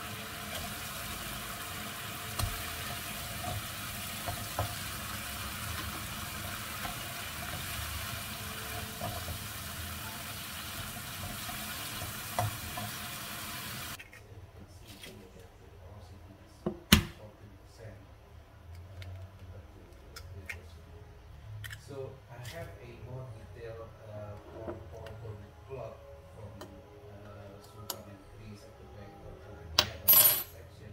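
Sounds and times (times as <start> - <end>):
food sizzling in a wok: 0.0 - 14.0.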